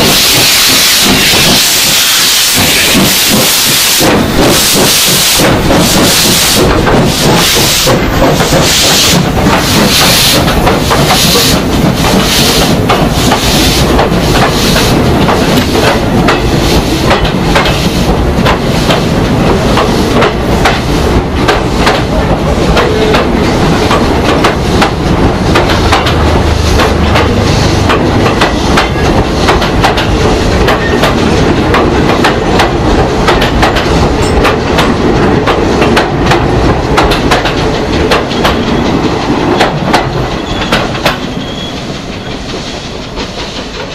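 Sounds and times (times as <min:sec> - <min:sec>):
steam locomotive hissing: 0:00.0 - 0:43.9
engine beats and wheel clicks: 0:02.6 - 0:43.9.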